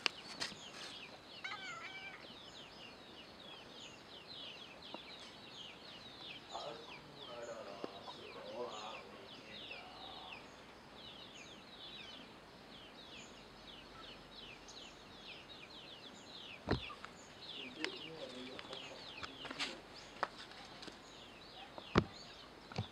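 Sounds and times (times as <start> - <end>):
small birds chirping: 0.0 - 22.9
sharp knocks: 16.6 - 17.0.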